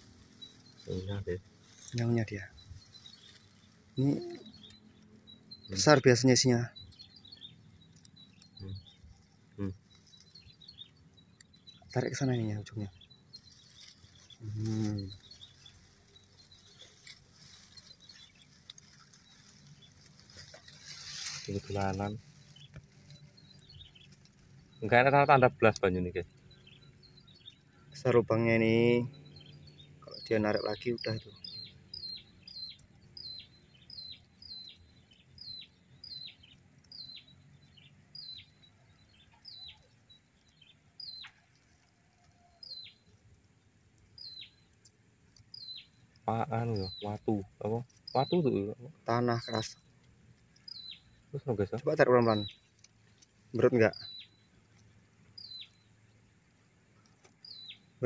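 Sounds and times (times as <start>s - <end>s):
dry grass and soil rustling: 0.0s - 58.0s
bird calling with downward notes: 4.0s - 4.8s.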